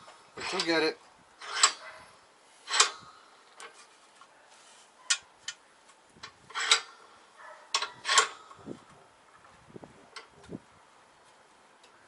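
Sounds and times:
metal clicks and knocks: 0:01.4 - 0:01.8, 0:06.2 - 0:06.9, 0:07.7 - 0:08.4.

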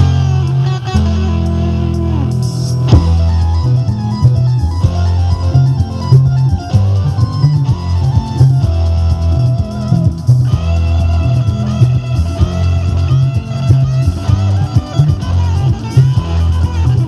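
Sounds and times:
rock music through speakers: 0:00.0 - 0:17.0.

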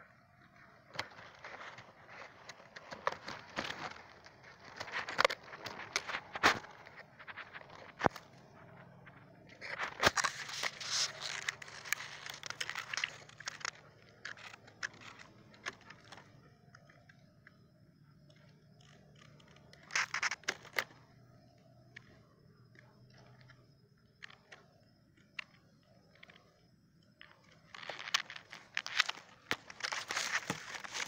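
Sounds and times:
twigs snapping: 0:00.9 - 0:08.8, 0:09.6 - 0:17.0, 0:27.2 - 0:31.0
dry leaves rustling and crackling: 0:10.0 - 0:13.6, 0:27.8 - 0:31.0.

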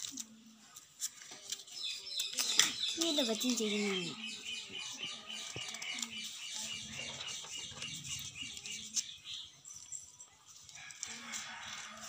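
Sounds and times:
small birds chirping: 0:01.2 - 0:10.7.

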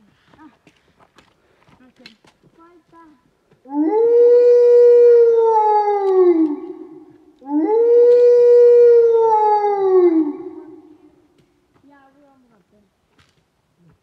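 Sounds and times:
dog howling: 0:03.7 - 0:11.1.

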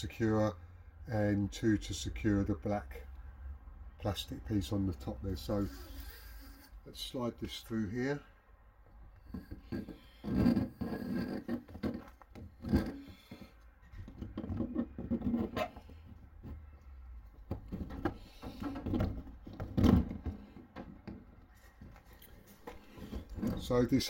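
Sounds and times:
rubbing and scraping on metal: 0:05.3 - 0:07.0, 0:09.2 - 0:24.0.

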